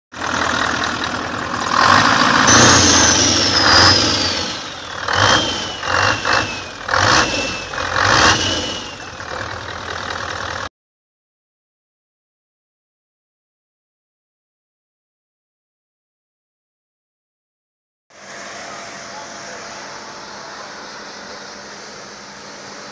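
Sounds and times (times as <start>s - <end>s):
engine revving: 0.2s - 10.7s.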